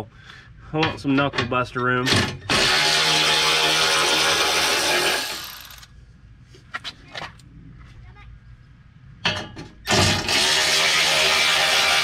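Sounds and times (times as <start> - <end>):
electric ratchet running: 2.5 - 5.9, 9.9 - 12.0.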